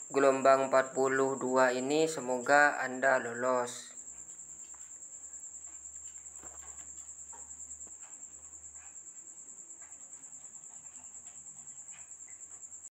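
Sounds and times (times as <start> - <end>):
high-pitched insect trill: 0.0 - 12.9
faint ticks: 3.9 - 12.9.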